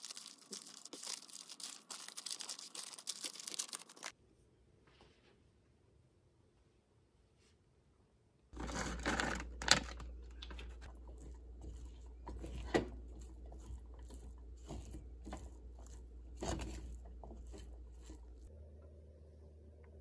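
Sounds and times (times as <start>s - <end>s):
spatula scraping a pan: 8.6s - 9.5s, 10.8s - 18.5s
low steady hum: 8.6s - 20.0s.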